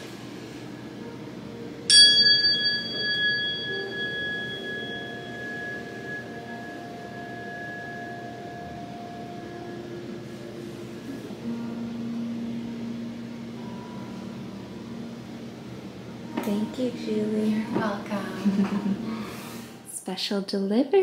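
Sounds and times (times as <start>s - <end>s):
tuning fork ringing: 1.0s - 17.2s.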